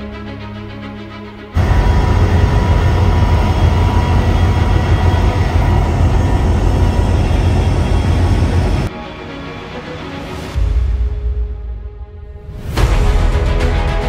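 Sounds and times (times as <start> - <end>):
vehicle motor rumbling: 1.6 - 8.9.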